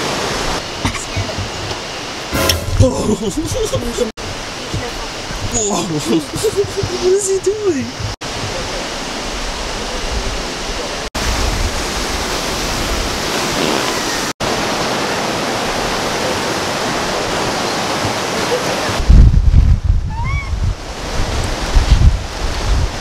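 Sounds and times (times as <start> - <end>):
mountain stream rushing: 0.0 - 19.2, 20.3 - 23.0
wind buffeting microphone: 2.7 - 13.4, 16.9 - 23.0.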